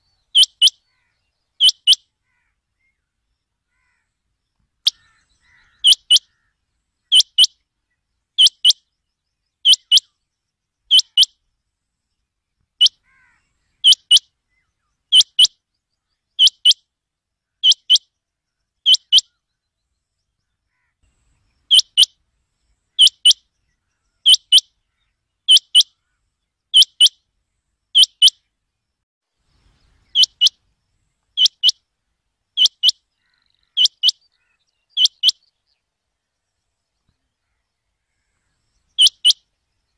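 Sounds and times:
quail calling: 0:00.3 - 0:02.6, 0:03.7 - 0:04.1, 0:04.8 - 0:07.5, 0:08.4 - 0:08.8, 0:09.6 - 0:10.1, 0:10.9 - 0:11.3, 0:12.8 - 0:14.2, 0:15.1 - 0:15.5, 0:16.4 - 0:16.8, 0:18.9 - 0:19.4, 0:21.7 - 0:22.1, 0:23.0 - 0:23.4, 0:24.2 - 0:26.0, 0:26.7 - 0:27.2, 0:28.0 - 0:28.4, 0:30.0 - 0:30.6, 0:31.4 - 0:31.8, 0:32.6 - 0:35.4, 0:38.2 - 0:39.4.

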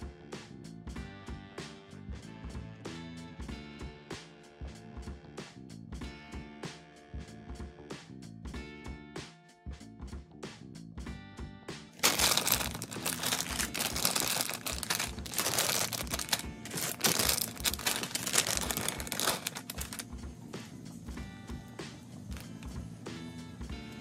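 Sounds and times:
background music: 0:00.0 - 0:24.0
plastic bags crinkling: 0:12.0 - 0:20.0, 0:22.3 - 0:22.6.

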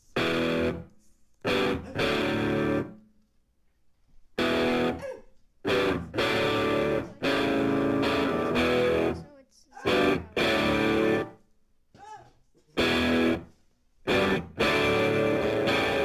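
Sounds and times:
guitar chords: 0:00.0 - 0:03.0, 0:04.4 - 0:05.0, 0:05.6 - 0:09.2, 0:09.8 - 0:11.4, 0:12.8 - 0:16.0.

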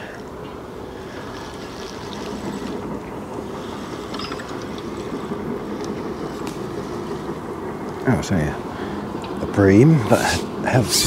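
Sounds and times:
fishing reel gears rattling: 0:04.0 - 0:05.2.

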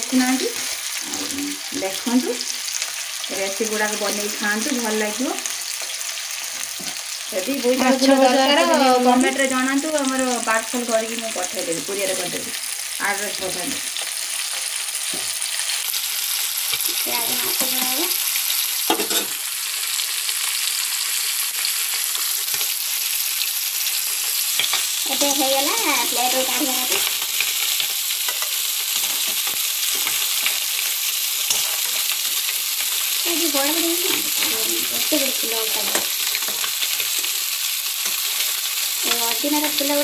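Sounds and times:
fritters sizzling in hot oil: 0:00.0 - 0:40.0
metal spoon scraping a pan: 0:18.8 - 0:19.4, 0:24.5 - 0:24.9, 0:26.4 - 0:33.1.

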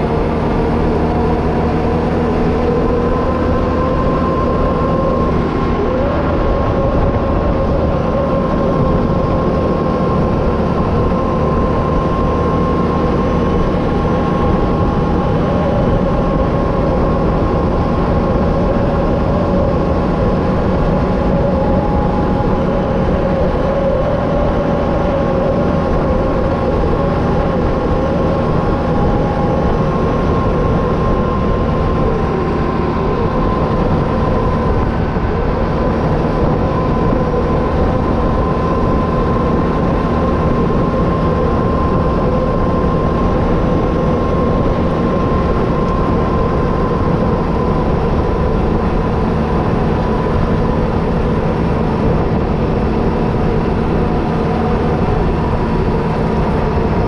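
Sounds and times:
atv engine rumbling with whine: 0:00.0 - 0:57.0.

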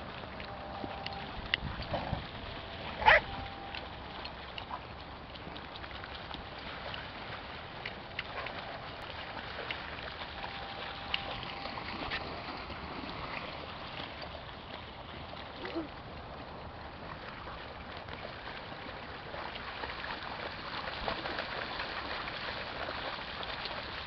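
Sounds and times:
dog barking: 0:03.0 - 0:03.3.

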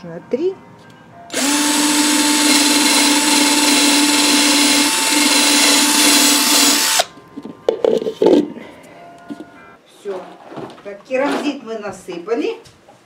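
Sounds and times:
electric drill boring plastic: 0:01.3 - 0:07.1.

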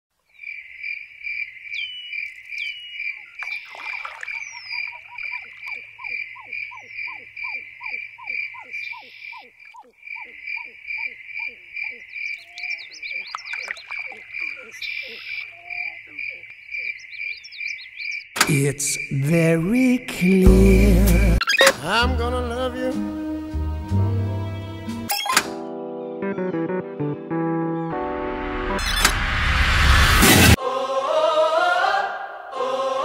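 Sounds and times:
frogs croaking: 0:00.2 - 0:21.7
high pulsing insect chirp: 0:00.3 - 0:21.4.

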